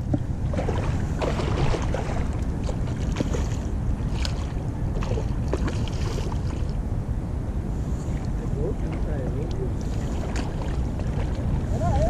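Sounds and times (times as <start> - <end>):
wind buffeting microphone: 0.0 - 12.0
fish splashing at water surface: 0.5 - 6.8.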